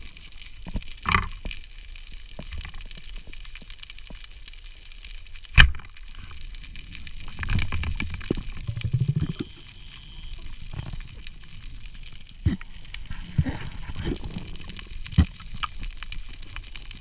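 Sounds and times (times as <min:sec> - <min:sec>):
rattling and rumbling in rocks: 0:05.7 - 0:17.0.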